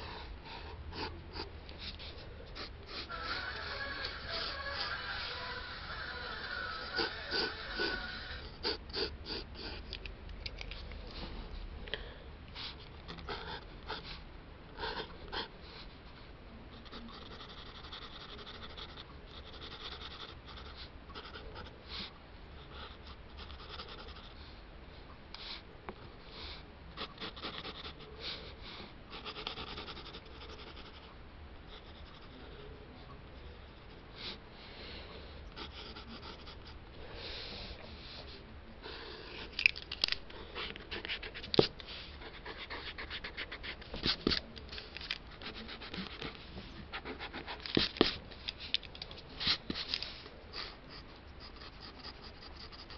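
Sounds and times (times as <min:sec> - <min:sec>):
pencil scratching on paper: 0:16.7 - 0:21.7, 0:22.6 - 0:24.4, 0:29.1 - 0:31.1, 0:31.7 - 0:32.4, 0:35.6 - 0:36.8, 0:45.3 - 0:48.2, 0:50.6 - 0:52.9.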